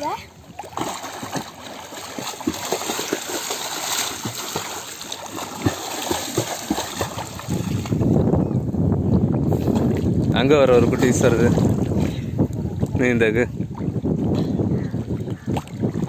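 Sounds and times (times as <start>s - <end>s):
small irregular splashes: 0.0s - 8.0s
floodwater splashing and trickling: 0.0s - 8.4s, 9.0s - 16.0s.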